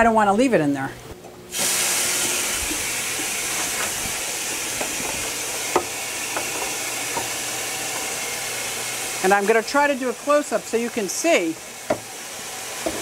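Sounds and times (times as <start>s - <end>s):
water and air hissing through tube: 1.5s - 9.2s.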